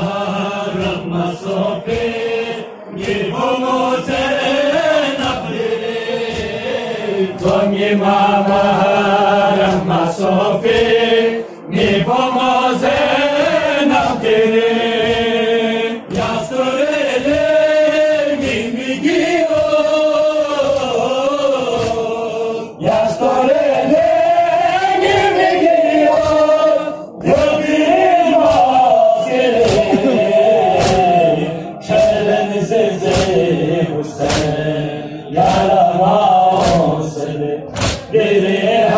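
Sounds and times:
crowd of men chanting: 0.0 - 38.9
rhythmic chest-beating strikes: 0.0 - 38.9.

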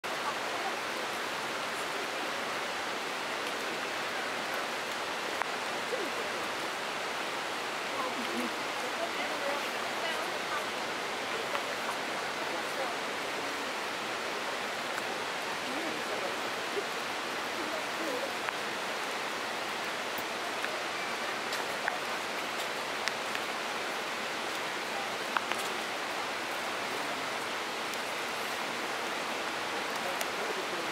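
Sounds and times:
running water rushing: 0.0 - 30.9
faint sharp clicks: 21.5 - 23.5, 25.3 - 25.7.

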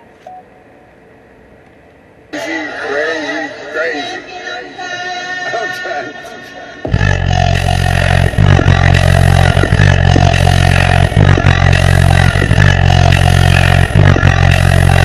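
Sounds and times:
deep bass from subwoofers: 6.7 - 15.0.

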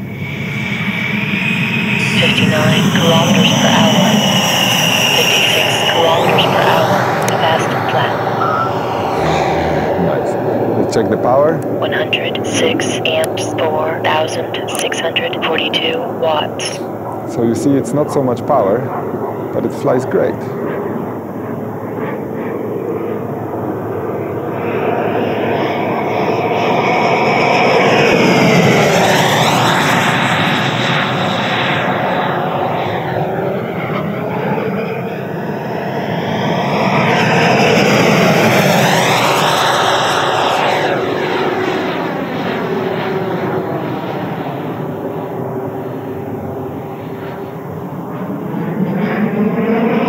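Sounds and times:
electric ducted fan whine passing: 3.6 - 11.6.

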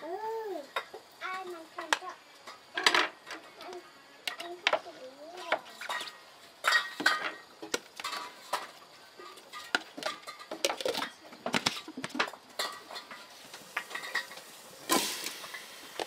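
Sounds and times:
dishes and utensils clinking: 5.6 - 15.7.

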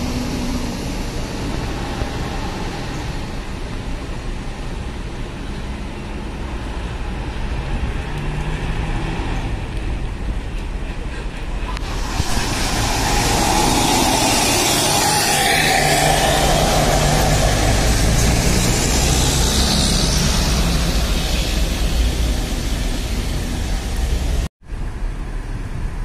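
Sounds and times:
bus diesel engine driving past: 10.7 - 24.5.

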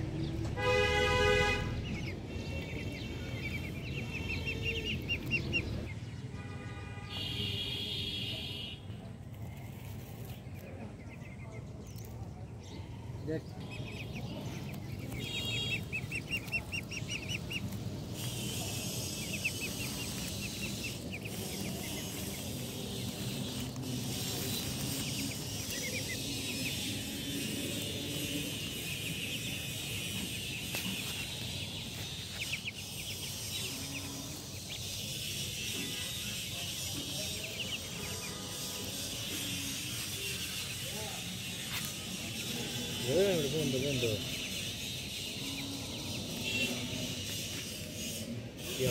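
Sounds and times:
ducklings peeping: 0.0 - 6.2, 9.0 - 48.9
steady high hiss: 17.0 - 43.0.

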